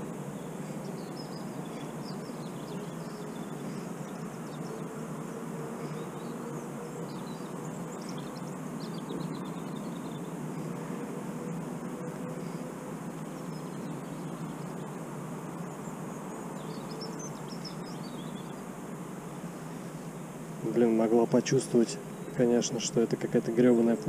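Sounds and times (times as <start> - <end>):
faint bird chirps: 0.0 - 4.9, 5.7 - 11.6, 12.2 - 18.7
faint hum: 0.0 - 24.0.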